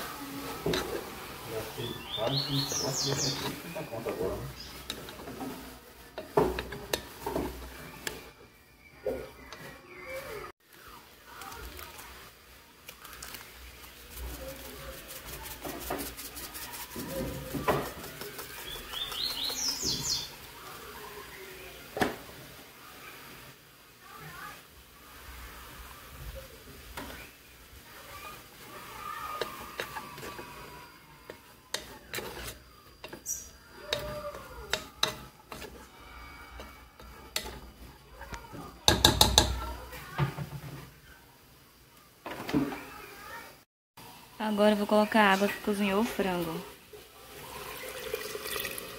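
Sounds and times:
spoon scraping and knocking pot: 0.6 - 1.0, 2.2 - 8.2, 29.4 - 37.9.

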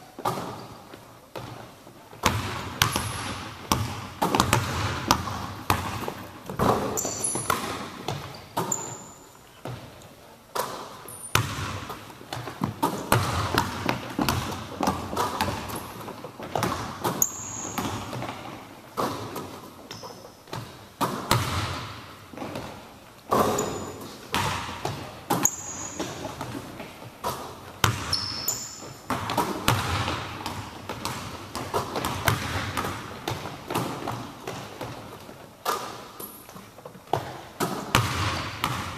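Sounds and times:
sneaker squeaks: 0.1 - 1.6, 2.4 - 3.4, 5.8 - 9.8, 10.6 - 12.0, 14.2 - 20.8, 23.3 - 24.4, 25.1 - 29.7
basketball bouncing on wooden floor: 0.2 - 1.6, 2.2 - 9.9, 10.6 - 38.9.

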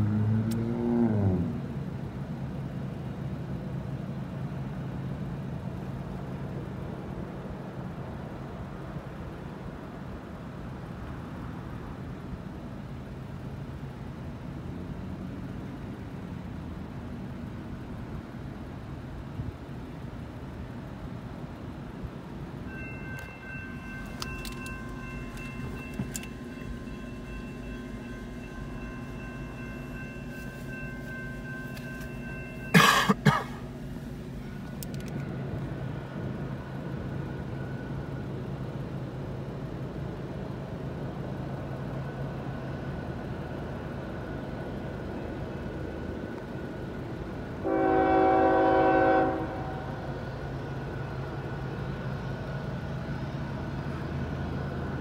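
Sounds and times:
diesel locomotive rumbling: 0.0 - 55.0
steady high whine: 22.6 - 39.4
train air horn blast: 47.6 - 50.1.

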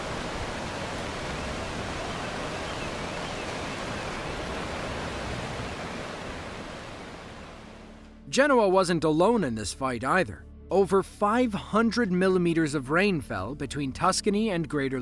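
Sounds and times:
floodwater rushing: 0.0 - 8.0.

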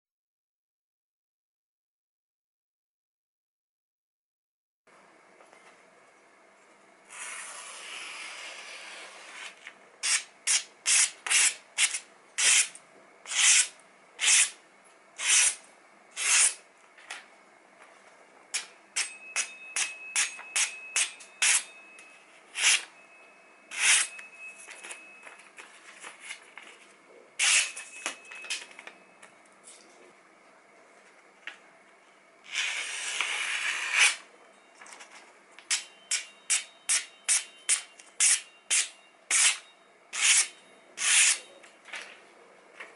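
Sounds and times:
paper rustling: 24.6 - 27.0.

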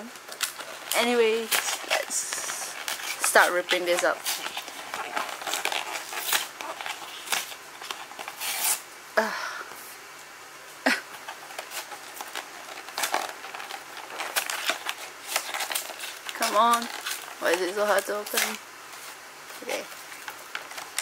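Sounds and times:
paper rustling and ripping: 0.1 - 8.8, 11.2 - 21.0
sharp paper tears: 0.3 - 8.8, 11.6 - 18.6.

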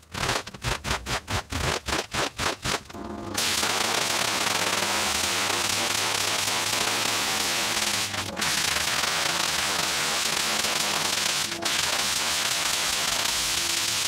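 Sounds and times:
water jet spraying rug: 0.1 - 14.0.

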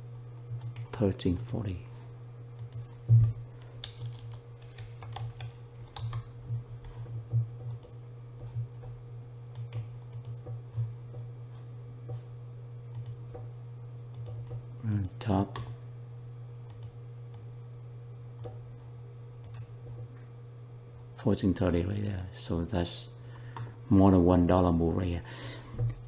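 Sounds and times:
steady low hum: 0.0 - 26.0
keyboard typing: 2.6 - 7.0, 7.6 - 8.0, 9.5 - 10.5, 12.9 - 13.2, 14.1 - 15.2.

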